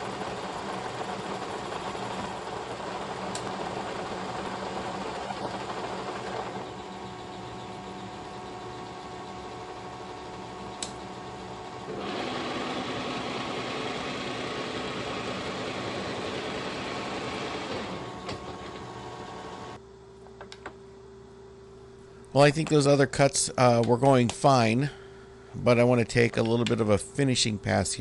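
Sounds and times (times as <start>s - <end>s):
milling machine drone: 0.0s - 19.8s.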